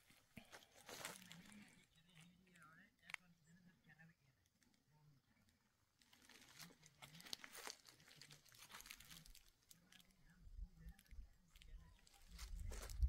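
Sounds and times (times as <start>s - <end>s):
dry leaves crunching: 0.8s - 1.7s, 6.0s - 10.2s, 11.6s - 13.0s.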